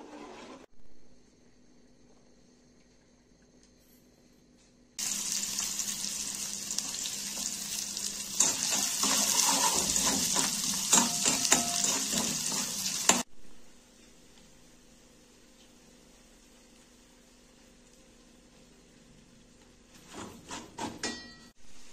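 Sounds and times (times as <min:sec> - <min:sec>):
onions sizzling in hot oil: 0:05.0 - 0:13.3, 0:14.7 - 0:20.0
metal spoon scraping a pan: 0:08.3 - 0:13.2.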